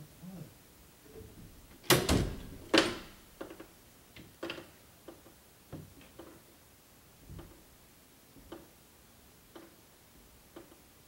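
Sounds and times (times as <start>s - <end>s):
closet door bangs: 1.2s - 3.3s
light clicks and taps: 10.5s - 10.8s.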